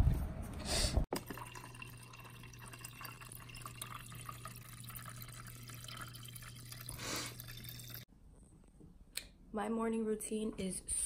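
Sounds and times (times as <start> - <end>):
water running into plastic bottle: 1.1 - 8.0.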